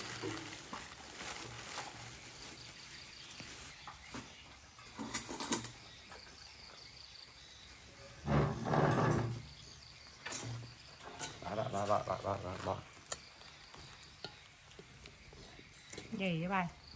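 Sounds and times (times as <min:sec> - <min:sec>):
plastic bags crinkling: 0:00.0 - 0:04.2.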